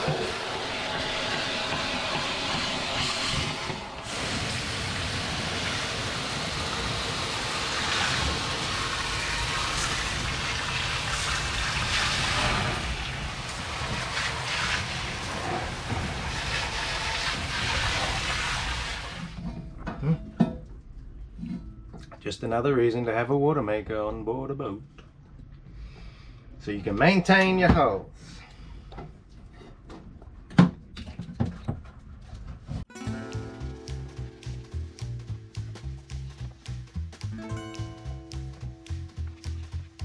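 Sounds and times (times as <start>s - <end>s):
hose water spraying onto metal: 0.0s - 19.4s.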